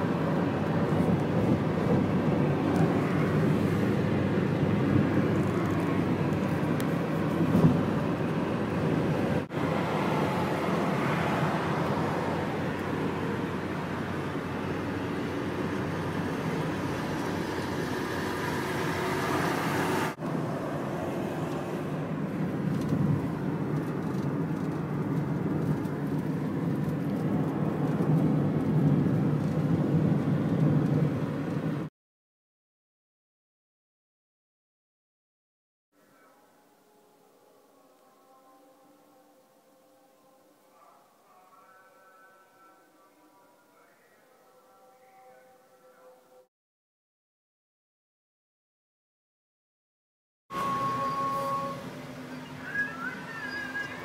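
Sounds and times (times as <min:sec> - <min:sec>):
road vehicle rumble: 0:00.0 - 0:31.9, 0:50.5 - 0:54.0.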